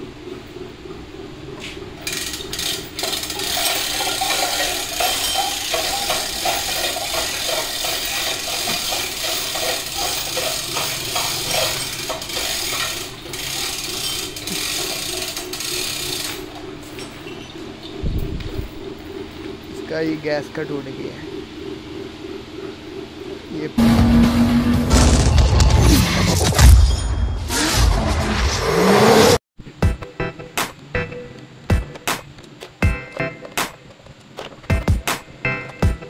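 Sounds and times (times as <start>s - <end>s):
ratchet clicking and rattling: 2.0s - 17.4s.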